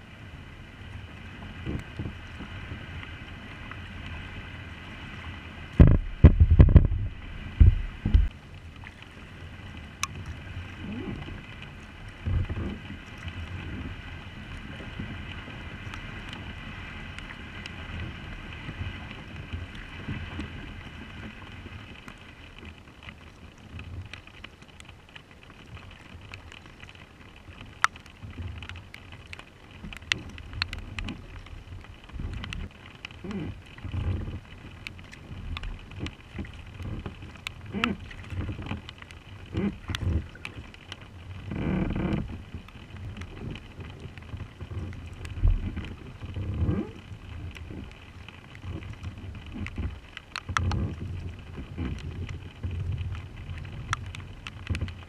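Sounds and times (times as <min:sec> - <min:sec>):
paddle strokes in water: 0:00.0 - 0:55.0
raindrops ticking on camera: 0:00.1 - 0:55.0
wind buffeting microphone: 0:05.7 - 0:08.3.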